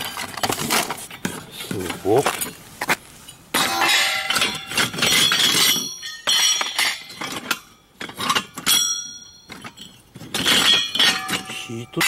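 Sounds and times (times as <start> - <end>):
scrap metal pieces clanking: 3.5 - 12.0.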